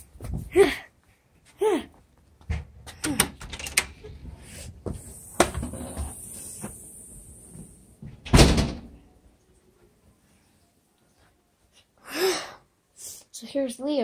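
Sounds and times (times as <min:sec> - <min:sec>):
wooden door opening: 0:03.0 - 0:04.0, 0:08.2 - 0:09.0.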